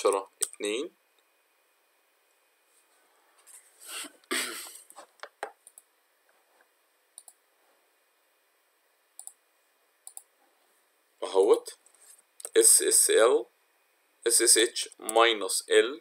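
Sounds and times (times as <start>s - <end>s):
computer mouse clicks: 5.2s - 5.9s, 7.2s - 7.4s, 9.2s - 9.4s, 10.0s - 10.3s.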